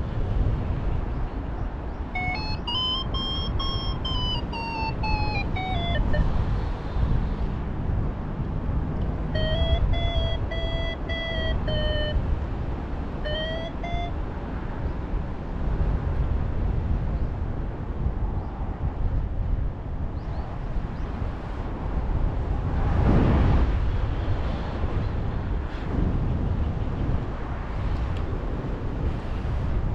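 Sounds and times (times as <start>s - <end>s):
wind rumbling on microphone: 0.0s - 29.9s
variometer beeping: 2.2s - 6.4s, 9.3s - 12.3s, 13.2s - 14.2s.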